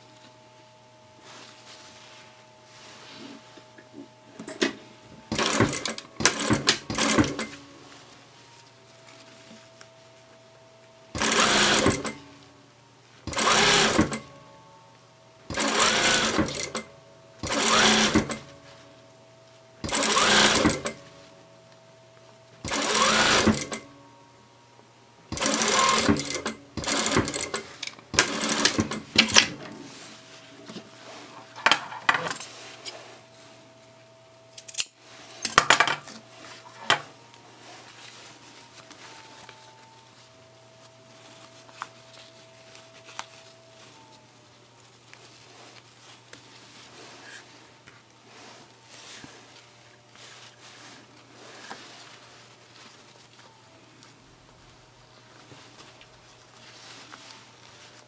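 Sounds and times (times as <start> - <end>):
faint steady hum: 0.0 - 11.3, 12.0 - 13.4, 14.2 - 15.6, 16.4 - 17.4, 18.2 - 19.9, 20.8 - 22.7, 23.6 - 25.4, 28.9 - 58.0
sewing machine stitching: 5.3 - 7.6, 11.1 - 12.2, 13.2 - 14.4, 15.5 - 18.6, 19.8 - 21.1, 22.6 - 23.9, 25.3 - 29.7
sewing machine clicks: 11.2 - 12.2, 13.3 - 14.3, 15.5 - 18.5, 19.9 - 21.0, 22.7 - 23.9, 25.4 - 29.5.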